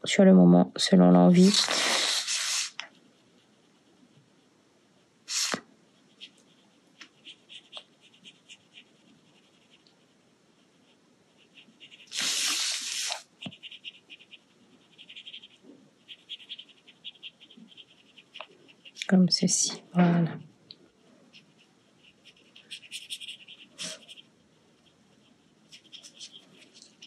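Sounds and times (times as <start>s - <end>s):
brush scratching on paper: 0.9s - 4.6s, 5.2s - 19.9s, 20.9s - 27.0s
hiss bursts: 5.3s - 5.6s, 12.1s - 13.2s.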